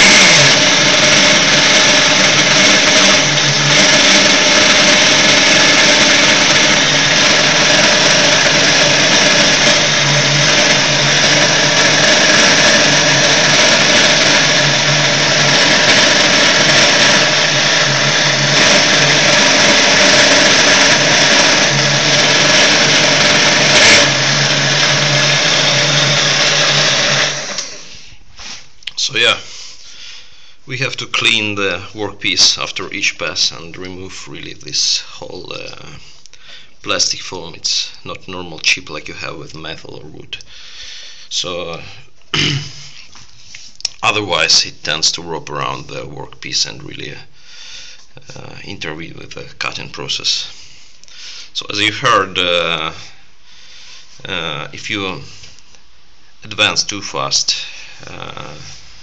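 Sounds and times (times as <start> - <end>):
lathe whining while turning: 0.0 - 27.9.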